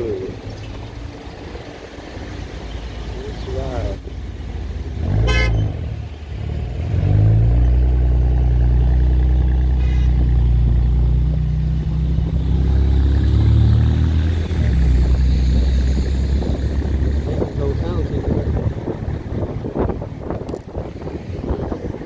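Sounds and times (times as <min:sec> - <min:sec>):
vehicle engine droning: 0:00.0 - 0:22.0.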